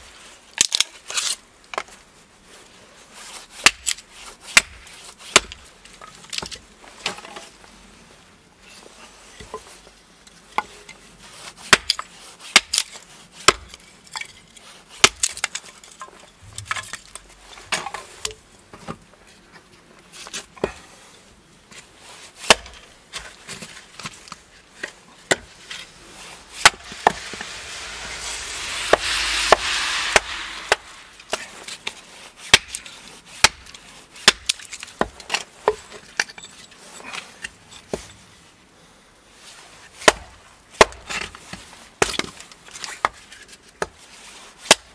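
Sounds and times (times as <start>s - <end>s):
hatchet chopping wood: 3.6s - 3.9s, 4.6s - 5.6s, 11.7s - 12.9s, 13.5s - 13.8s, 15.0s - 15.5s, 22.4s - 22.8s, 32.5s - 32.8s, 33.4s - 35.2s, 40.0s - 41.3s, 42.0s - 42.3s, 44.7s - 44.9s
hiss: 25.5s - 32.1s.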